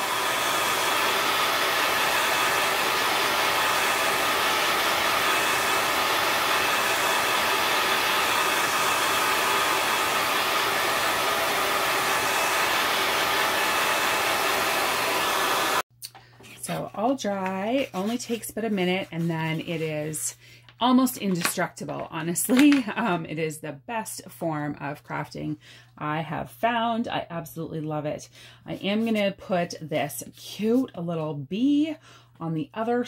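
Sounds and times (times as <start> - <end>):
hair dryer running: 0.0 - 15.9, 22.5 - 23.1.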